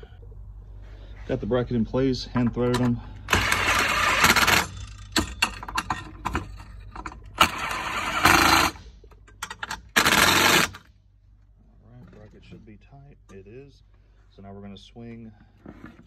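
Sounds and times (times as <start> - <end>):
impact driver bursts: 3.2 - 5.4, 7.4 - 8.8, 9.7 - 10.9.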